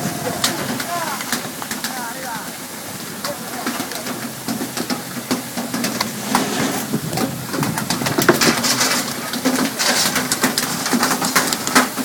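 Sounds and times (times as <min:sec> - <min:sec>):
water splashing: 0:00.0 - 0:12.0
low engine hum: 0:02.5 - 0:09.5.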